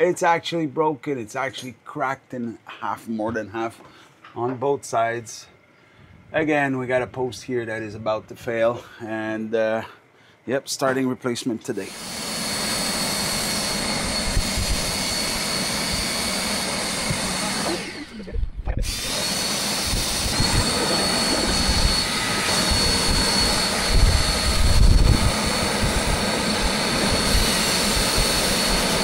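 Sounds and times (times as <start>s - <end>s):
shop vacuum whining: 11.8s - 29.0s.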